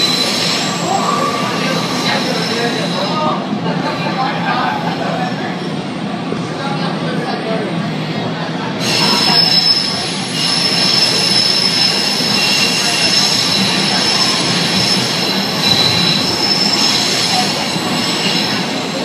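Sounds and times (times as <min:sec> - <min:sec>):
train wheels rumbling on rail: 0:07.9 - 0:19.0
wheels squealing: 0:08.8 - 0:19.0.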